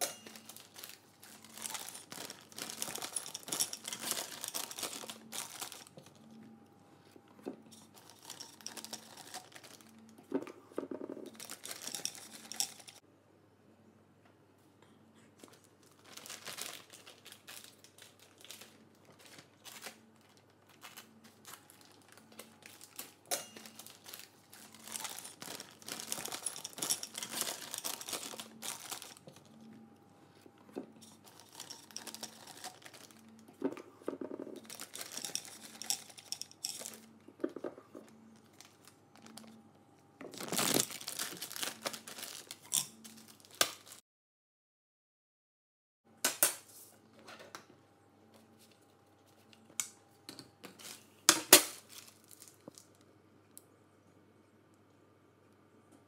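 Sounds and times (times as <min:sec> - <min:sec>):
plastic piping bag crinkling: 0:00.0 - 0:06.4, 0:07.7 - 0:10.2, 0:11.3 - 0:13.0, 0:15.4 - 0:29.6, 0:30.9 - 0:34.0, 0:34.6 - 0:37.2, 0:38.0 - 0:39.6, 0:40.2 - 0:44.0, 0:51.7 - 0:53.0.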